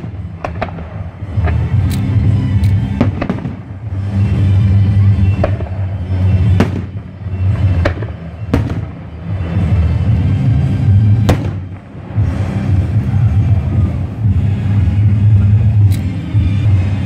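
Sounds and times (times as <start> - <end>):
firework shells bursting: 0.0 - 3.9
loud music: 0.0 - 17.0.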